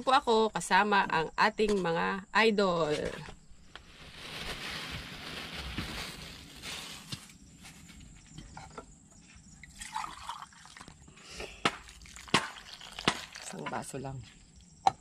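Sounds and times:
liquid dripping: 9.6 - 11.1, 11.8 - 13.6
hand squeezing wet grated coconut: 11.9 - 13.6.

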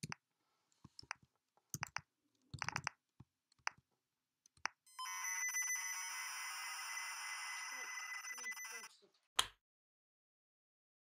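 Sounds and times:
keyboard typing clicks: 1.0 - 3.8.

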